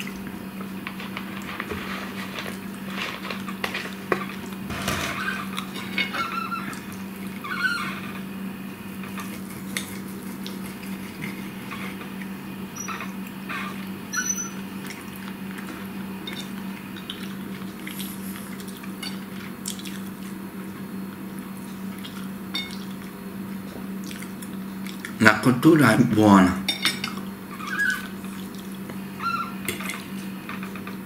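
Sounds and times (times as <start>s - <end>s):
steady low hum: 0.0s - 31.0s
wet chewing sounds: 9.0s - 12.4s, 14.7s - 25.2s, 27.2s - 29.0s.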